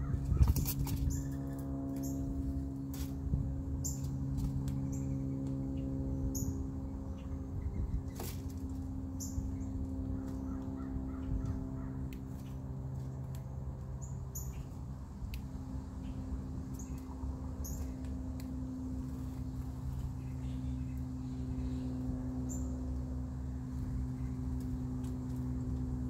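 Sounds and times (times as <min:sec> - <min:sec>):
steady low hum: 0:00.0 - 0:26.0
blue jay calling: 0:09.2 - 0:12.4.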